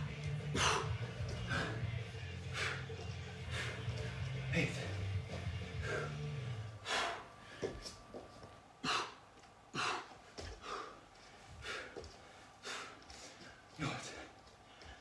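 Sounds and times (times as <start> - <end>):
hands and feet tapping floor: 0.0 - 6.1, 7.5 - 8.6, 9.4 - 15.0
man breathing heavily: 0.0 - 15.0.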